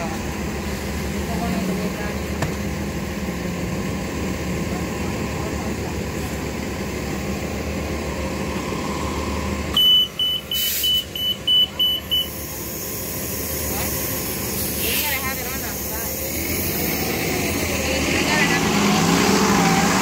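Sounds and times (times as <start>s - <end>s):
bus engine idling: 0.0s - 20.0s
short high warning beeps: 9.7s - 12.5s.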